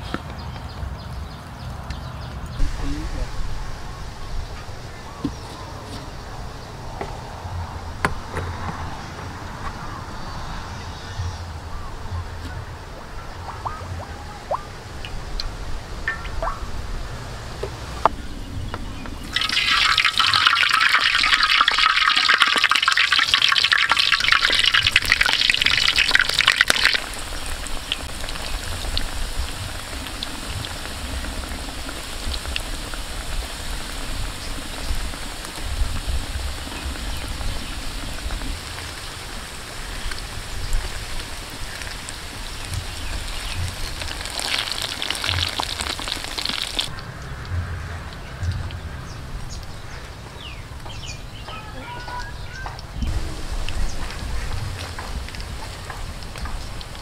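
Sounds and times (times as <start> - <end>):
eggs deep-frying in oil: 18.8 - 47.0, 53.0 - 57.0
oil crackling: 18.8 - 47.0, 53.1 - 57.0.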